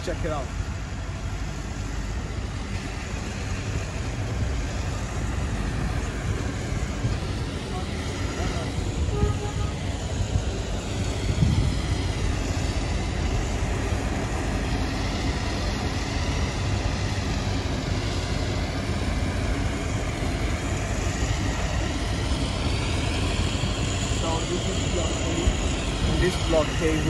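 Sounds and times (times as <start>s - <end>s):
low rumble: 0.6s - 27.0s.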